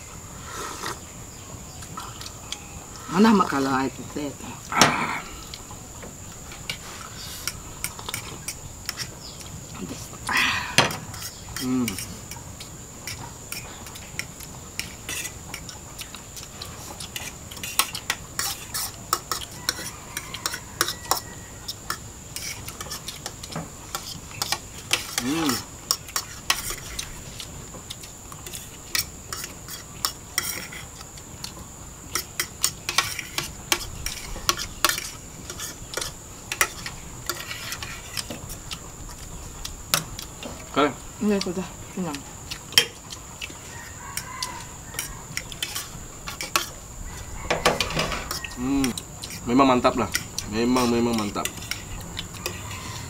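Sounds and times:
cutlery clinking on plates: 17.1 - 27.1, 47.5 - 49.4.

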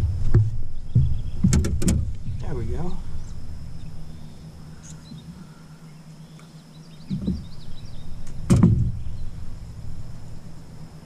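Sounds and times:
thumps and knocks in metal boat: 0.0 - 2.4, 7.1 - 7.5, 8.3 - 9.1
steady low hum: 0.0 - 11.0.

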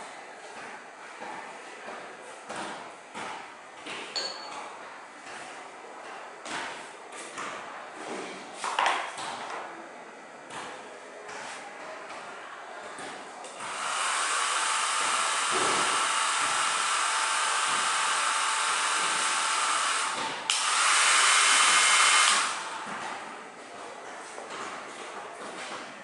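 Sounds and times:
hair dryer blowing: 13.6 - 22.8.

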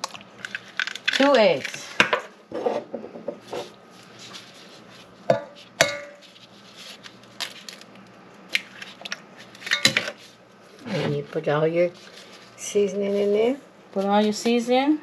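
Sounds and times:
metallic ring of bowl: 5.3 - 6.2.

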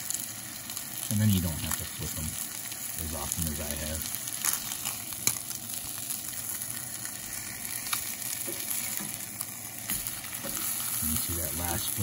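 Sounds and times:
fish sizzling in a skillet: 0.0 - 12.0.

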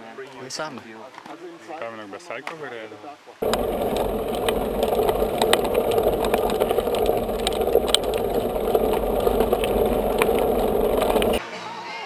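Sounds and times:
wind: 3.3 - 11.5
tyres rumbling on pavement: 3.4 - 11.4.

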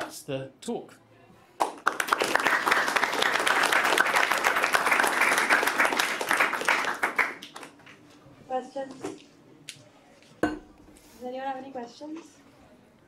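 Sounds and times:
audience applauding: 1.6 - 7.8.

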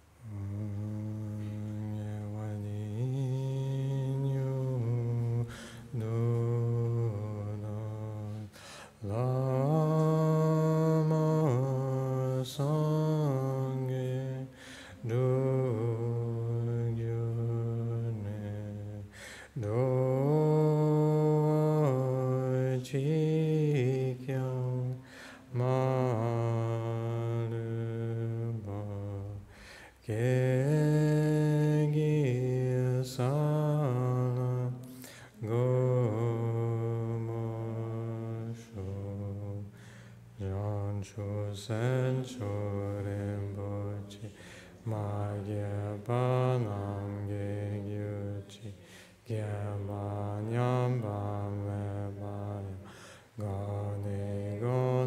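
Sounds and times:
man chanting a prayer: 0.3 - 29.4, 40.4 - 52.8.

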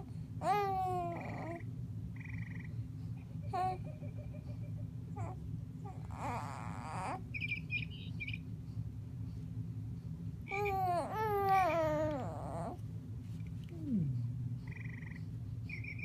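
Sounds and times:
infant cooing and babbling: 0.0 - 1.6, 5.2 - 7.2, 10.5 - 12.8
infant high squeaks: 5.9 - 7.2.

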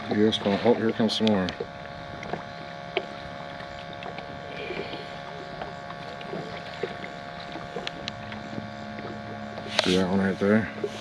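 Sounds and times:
electric motor humming: 0.0 - 11.0.

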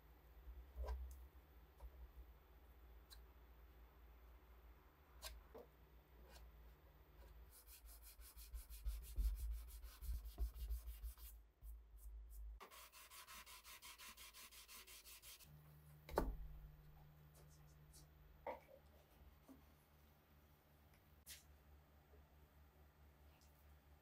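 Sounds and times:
hand-sanding wood strokes: 7.5 - 11.3, 12.6 - 15.5.

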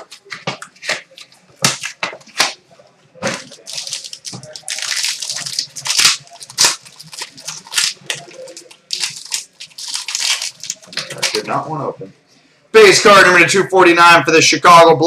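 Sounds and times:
wrapper sharp snaps: 3.3 - 11.4
wrapper crinkling and tearing: 3.3 - 11.5.

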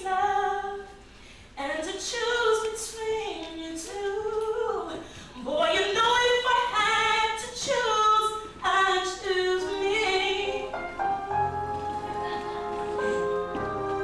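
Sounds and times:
woman singing into microphone: 1.6 - 10.7.

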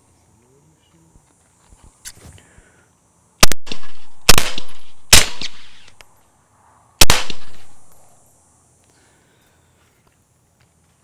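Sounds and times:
suppressed pistol shots: 3.4 - 6.0, 7.0 - 8.0.

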